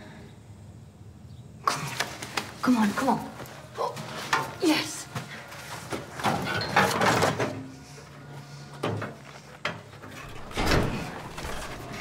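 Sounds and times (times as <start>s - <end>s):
heavy metal door clunk: 10.1s - 12.0s
metal door lock scraping: 10.1s - 12.0s.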